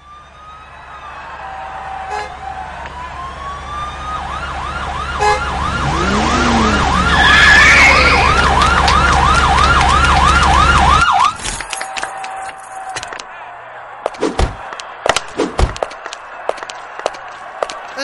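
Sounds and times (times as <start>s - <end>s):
police siren wailing: 0.0s - 13.0s
low vehicle rumble: 0.2s - 11.1s.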